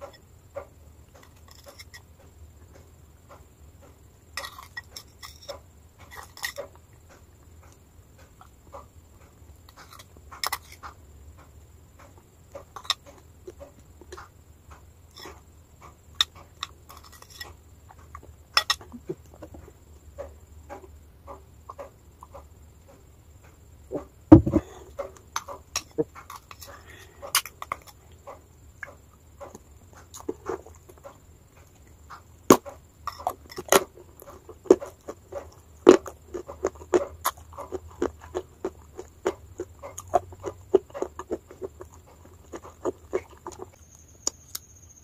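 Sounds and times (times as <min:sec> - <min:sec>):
wet mouth eating sounds: 0:32.6 - 0:43.8.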